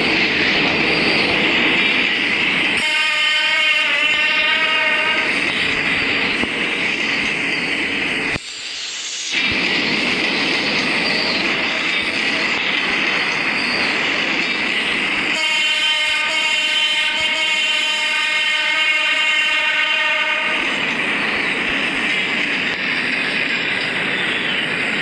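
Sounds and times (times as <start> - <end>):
train wheels rushing on rails: 0.0 - 25.0
train horn multi-note blast: 2.8 - 5.3, 15.3 - 20.6.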